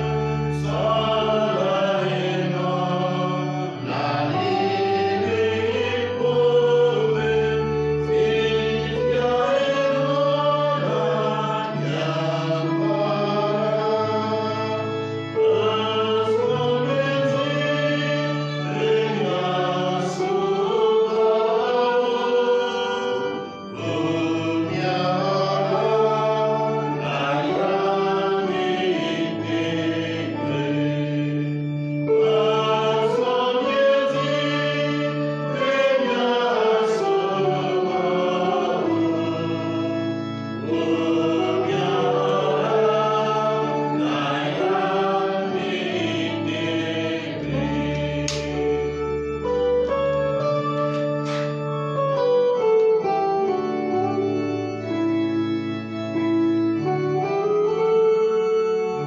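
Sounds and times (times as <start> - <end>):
choir singing a hymn: 0.0 - 59.0.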